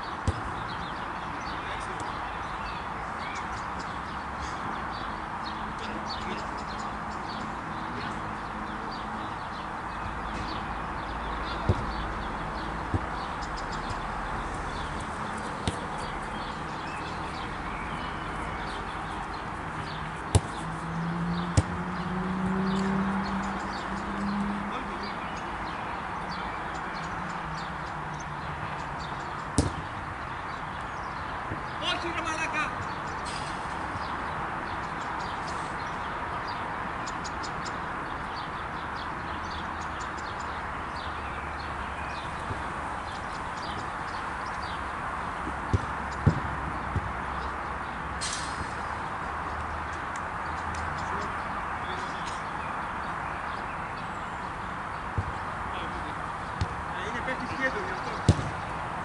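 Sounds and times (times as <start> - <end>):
small birds chirping: 0.0 - 59.0
football kick thuds: 0.2 - 0.5, 11.6 - 11.9, 15.6 - 16.0, 20.3 - 20.6, 21.5 - 21.8, 29.6 - 29.9, 45.7 - 47.2, 55.2 - 55.4, 58.2 - 58.6.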